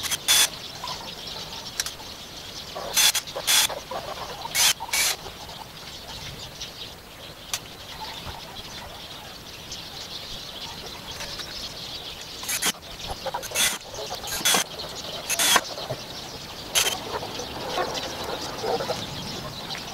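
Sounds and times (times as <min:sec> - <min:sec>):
small birds chirping: 0:00.0 - 0:19.9.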